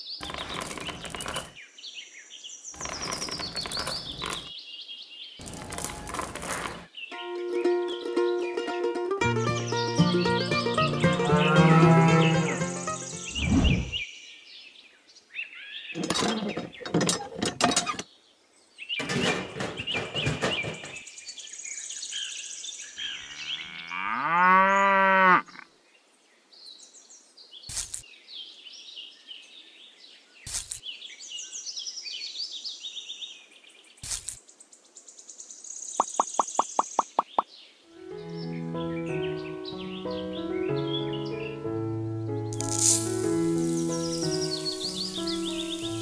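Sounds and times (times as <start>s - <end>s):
cow mooing: 11.2s - 12.6s, 23.2s - 25.6s
high bird-like chirping: 12.2s - 14.0s, 36.0s - 37.5s, 42.6s - 46.0s
sharp knocks: 19.0s - 21.0s.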